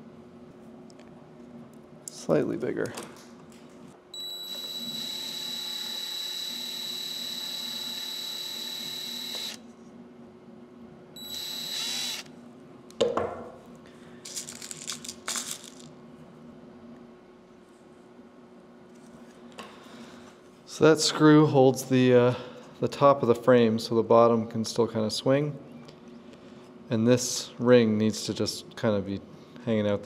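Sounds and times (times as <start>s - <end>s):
cordless drill whining: 4.2s - 9.6s, 11.2s - 12.3s.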